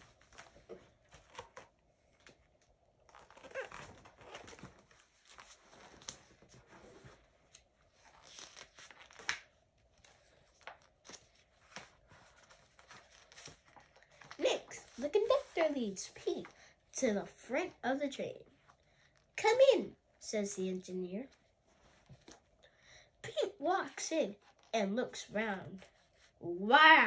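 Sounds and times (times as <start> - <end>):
book pages rustling: 0.0 - 17.8, 21.2 - 22.6, 24.0 - 26.4
paper page snap: 8.6 - 9.5.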